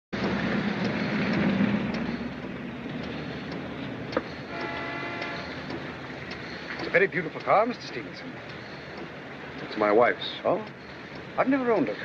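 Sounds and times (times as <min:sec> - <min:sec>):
car driving on wet street: 0:00.1 - 0:12.0
car horn: 0:04.5 - 0:05.6.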